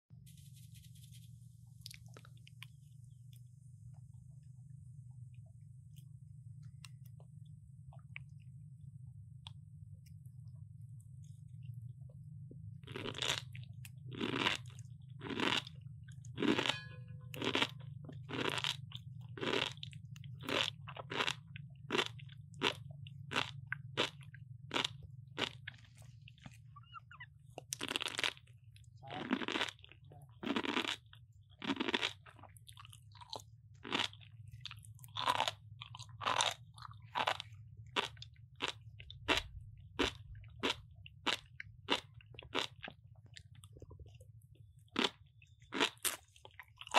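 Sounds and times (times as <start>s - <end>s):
steady low hum: 0.1s - 46.9s
monkeys crunching raw vegetable: 12.8s - 46.9s.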